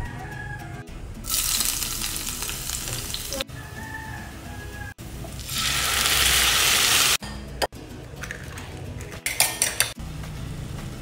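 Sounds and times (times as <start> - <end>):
onions sizzling in hot oil: 1.3 - 3.5, 5.1 - 7.2.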